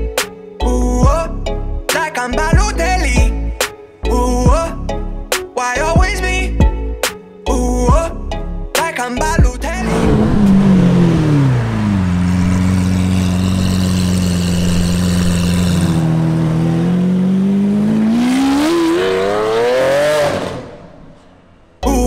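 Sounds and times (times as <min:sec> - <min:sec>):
car engine revving: 0:09.7 - 0:21.8.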